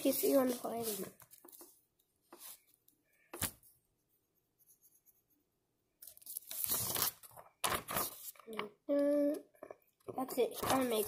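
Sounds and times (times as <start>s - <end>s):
paper rustle: 0.0s - 2.7s, 6.0s - 8.6s, 10.4s - 11.0s
pencil scratching on paper: 0.0s - 2.7s, 4.0s - 5.6s.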